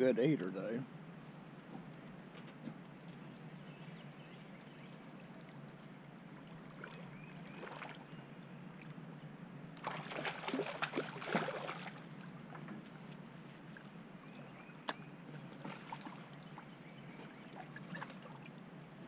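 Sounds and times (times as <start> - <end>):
fish splashing and thrashing: 5.1 - 8.0, 9.8 - 12.7, 14.9 - 18.5.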